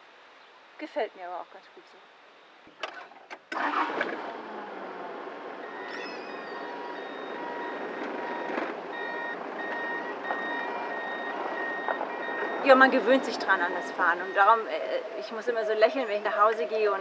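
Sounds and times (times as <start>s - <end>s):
truck engine running: 3.6s - 16.6s
reversing alarm beeping: 5.6s - 17.0s.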